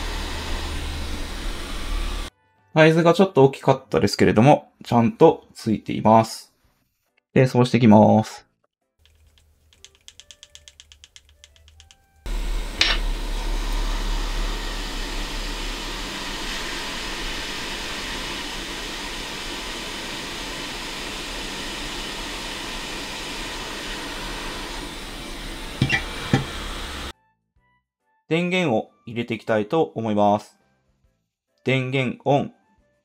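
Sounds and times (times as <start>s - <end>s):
heat gun blowing hot air: 0.0s - 2.3s, 11.7s - 27.1s
faint rapid ticking: 9.0s - 12.2s.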